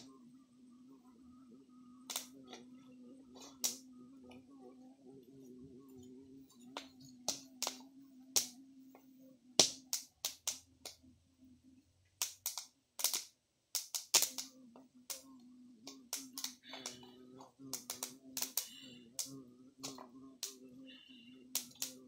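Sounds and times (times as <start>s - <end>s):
low steady hum: 0.0s - 22.0s
wood fire crackling and popping: 2.1s - 2.7s, 3.4s - 3.8s, 6.7s - 8.6s, 9.6s - 11.0s, 12.2s - 15.3s, 15.9s - 20.6s, 21.5s - 22.0s.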